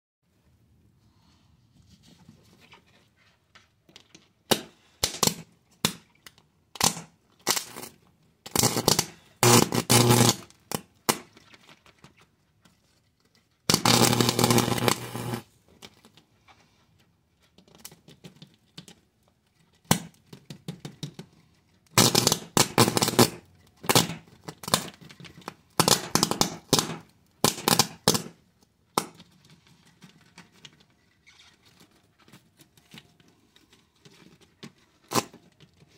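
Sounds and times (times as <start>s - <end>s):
electric arc crackling and buzzing: 6.8s - 7.9s, 8.5s - 10.5s, 13.7s - 15.5s, 22.0s - 23.4s.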